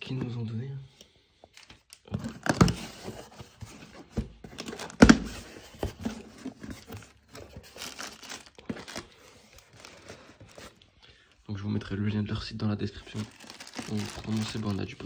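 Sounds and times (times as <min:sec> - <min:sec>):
plastic packing crinkling: 0:04.4 - 0:10.8, 0:12.8 - 0:15.0.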